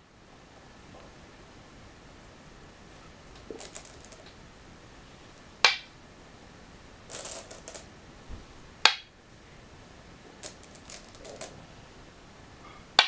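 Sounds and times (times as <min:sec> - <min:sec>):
stone clicking on wooden board: 0:03.4 - 0:04.3, 0:05.6 - 0:05.9, 0:07.1 - 0:07.9, 0:08.8 - 0:09.1, 0:10.4 - 0:11.5
stones rattling in bowl: 0:03.4 - 0:04.4, 0:07.1 - 0:07.9, 0:10.3 - 0:11.6.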